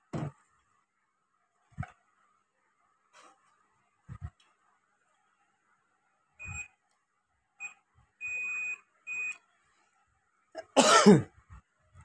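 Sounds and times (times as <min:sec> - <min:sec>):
multimeter continuity beeps: 0:06.4 - 0:06.8, 0:07.6 - 0:09.4.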